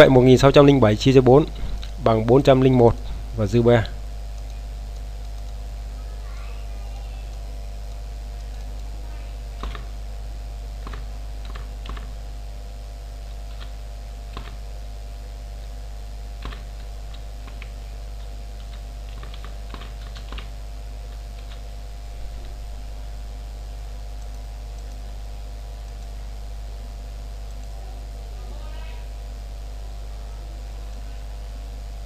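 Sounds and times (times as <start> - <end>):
low electrical hum: 0.0 - 32.0
keyboard keystrokes: 9.6 - 9.9, 10.8 - 12.1, 14.3 - 14.6, 16.4 - 20.5.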